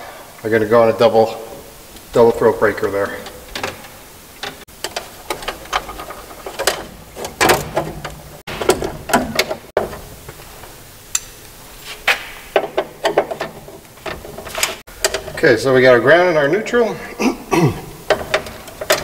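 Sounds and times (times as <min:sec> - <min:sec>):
copper wires clicking and scraping: 0:01.8 - 0:15.9, 0:18.0 - 0:19.0.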